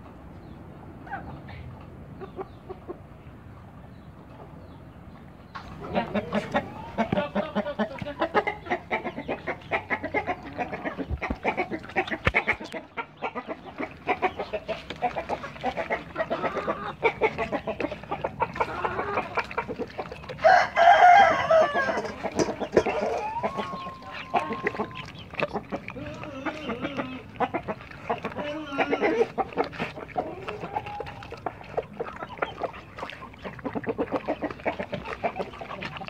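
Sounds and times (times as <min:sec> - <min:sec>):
chickens clucking: 0:00.4 - 0:36.0
puppies eating from steel bowl: 0:05.6 - 0:36.0
rooster crowing: 0:20.4 - 0:22.2.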